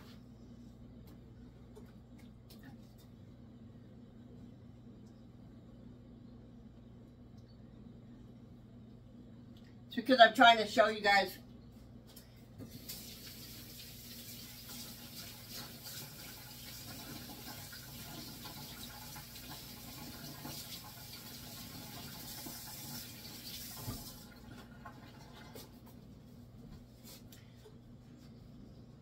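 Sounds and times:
tap water splashing into sink: 0:12.6 - 0:25.7.

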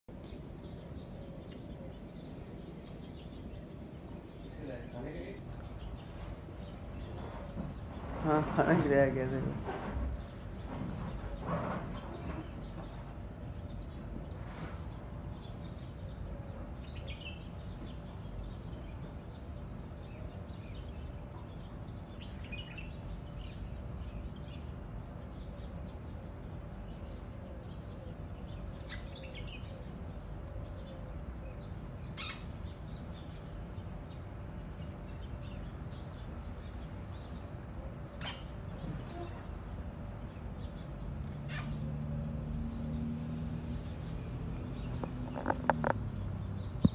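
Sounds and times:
faint chirps: 0:00.1 - 0:09.2, 0:10.2 - 0:46.9
low outdoor rumble: 0:00.1 - 0:46.9
high downward-sweeping bird calls: 0:28.4 - 0:30.1, 0:31.6 - 0:33.4, 0:38.1 - 0:39.5, 0:40.3 - 0:46.9.

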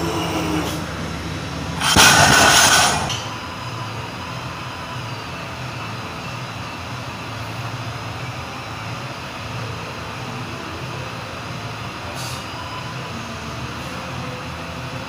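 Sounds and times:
low hum: 0:01.8 - 0:03.6.

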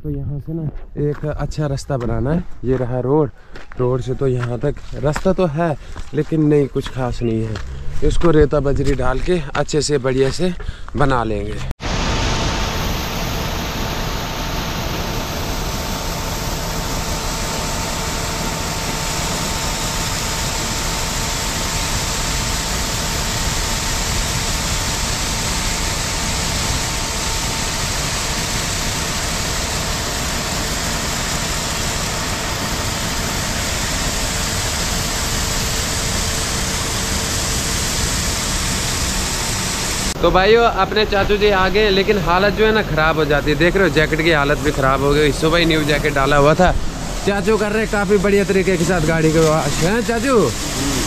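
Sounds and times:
machine hum with whine: 0:02.0 - 0:10.4, 0:11.3 - 0:51.0
water jet spraying on metal: 0:12.6 - 0:40.2, 0:41.2 - 0:51.0.

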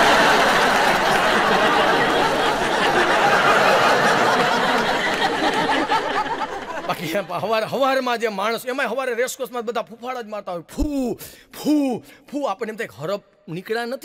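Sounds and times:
audience laughing: 0:00.0 - 0:07.6.

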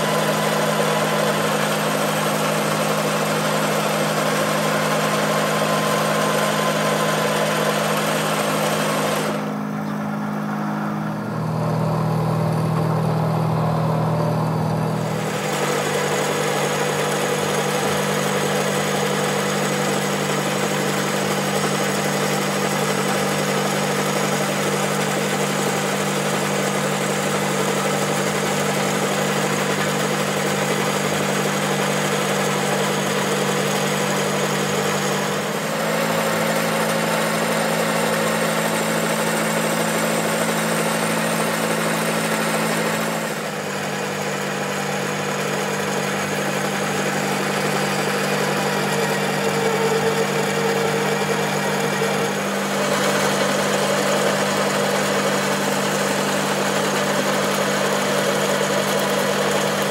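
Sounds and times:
metal lathe humming: 0:00.0 - 0:59.9.

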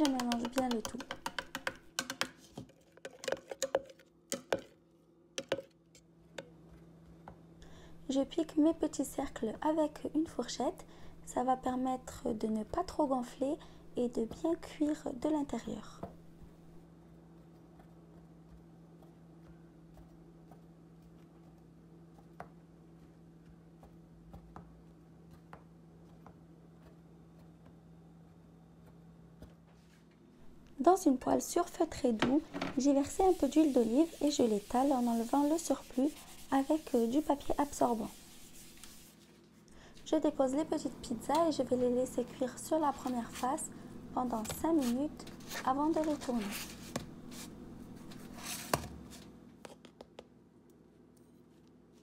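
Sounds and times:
fork tapping on marble worktop: 0:00.0 - 0:02.4, 0:03.0 - 0:04.7, 0:05.4 - 0:05.7
spoon stirring sauce in plastic jug: 0:00.0 - 0:04.8, 0:05.4 - 0:06.6, 0:31.6 - 0:39.1
low steady hum: 0:03.2 - 0:49.6.

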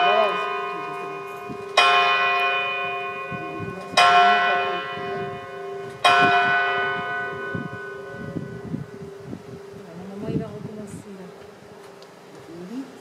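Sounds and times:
clock-tower bell tolling: 0:00.0 - 0:08.8.

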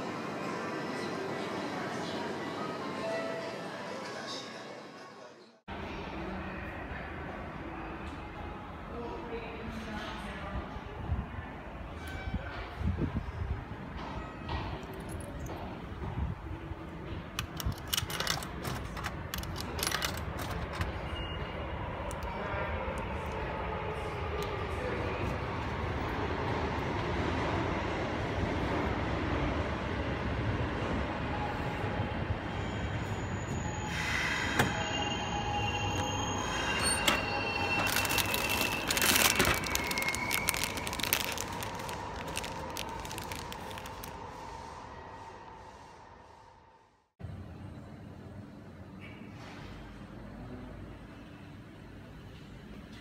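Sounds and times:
coins clinking through machine: 0:17.4 - 0:21.0
plastic snack bag crinkling: 0:37.8 - 0:44.2.

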